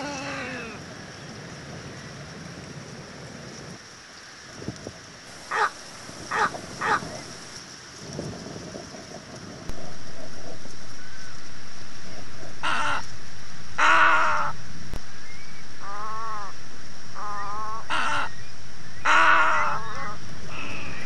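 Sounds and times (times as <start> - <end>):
wavering bird calls: 5.4 - 7.4, 15.2 - 21.0
egret croaking: 5.5 - 7.2.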